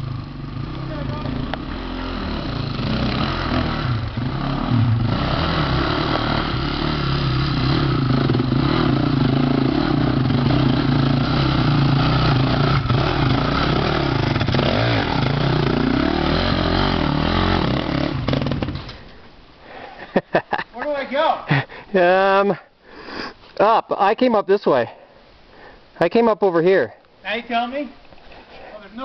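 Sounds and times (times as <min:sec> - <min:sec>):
dirt bike engine revving: 0:00.0 - 0:18.8.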